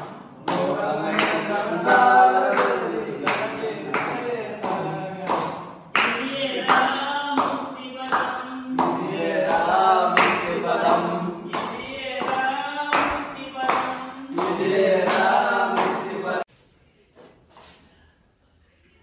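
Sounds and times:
hands clapping a steady beat: 0.0s - 16.4s
men singing devotional song: 0.0s - 16.5s.

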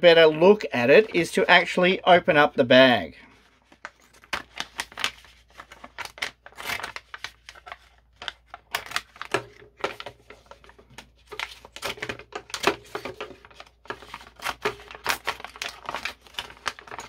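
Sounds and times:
plastic crinkling: 3.2s - 17.0s
scissors cutting plastic: 8.6s - 17.0s.

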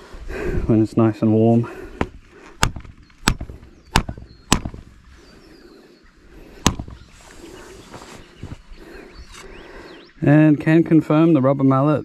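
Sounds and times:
rubber mallet knocking pipe fitting: 6.6s - 7.0s.

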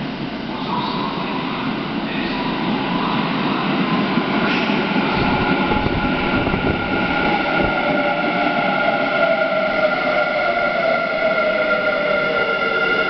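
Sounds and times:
train wheels rumbling on rails: 0.6s - 13.0s.

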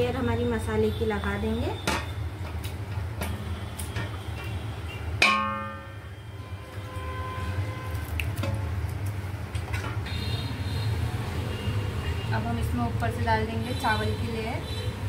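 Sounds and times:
metal utensil striking pot: 5.2s - 6.0s.

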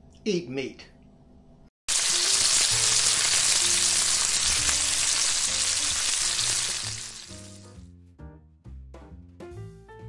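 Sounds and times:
food sizzling in hot fat: 1.9s - 7.8s.

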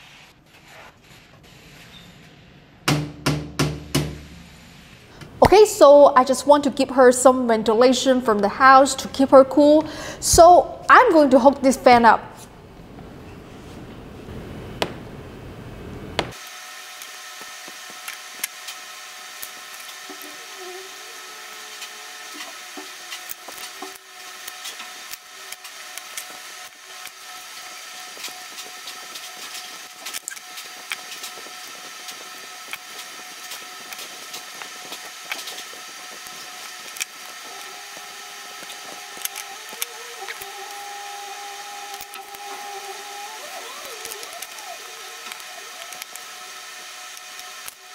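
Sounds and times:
hands working on a cable: 21.7s - 27.2s, 28.0s - 47.9s.

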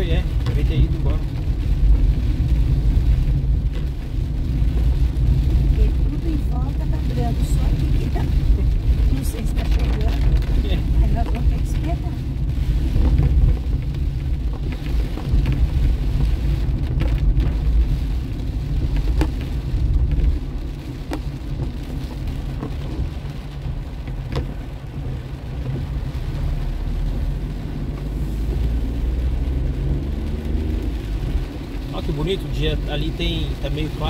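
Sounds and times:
car tyres rumbling on wet road: 0.0s - 34.0s
rain on car body: 0.0s - 34.0s
light ticks: 20.9s - 23.2s.

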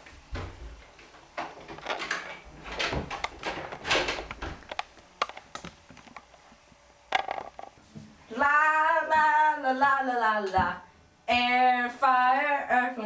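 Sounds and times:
door being shut: 1.4s - 4.8s.

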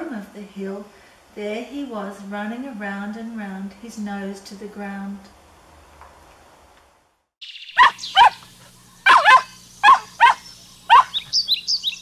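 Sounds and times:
dog yipping: 7.8s - 8.5s, 9.1s - 12.0s
dog barking: 7.8s - 11.4s.

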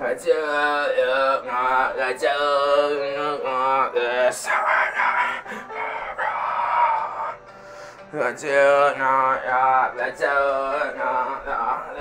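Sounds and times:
music: 0.0s - 12.0s
person singing long wavering notes: 0.0s - 12.0s.

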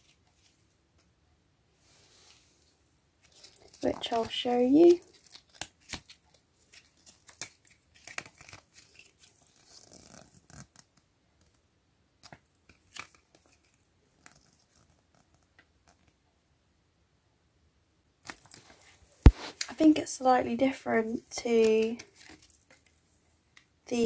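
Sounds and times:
paper crinkling and rustling: 3.2s - 10.8s, 12.2s - 16.0s, 21.1s - 23.0s.

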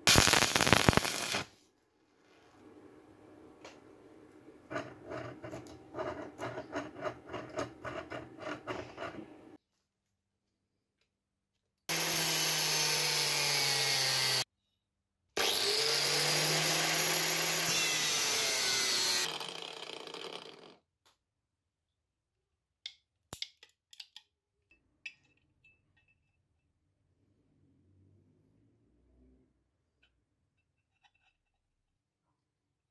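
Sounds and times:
angle grinder cutting steel: 0.1s - 1.5s, 11.9s - 14.5s, 15.4s - 20.7s.

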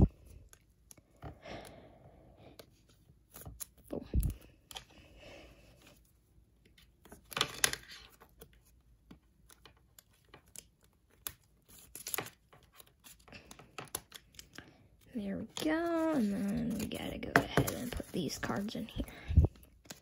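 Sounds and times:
plastic card sleeve crinkling: 6.8s - 20.0s.

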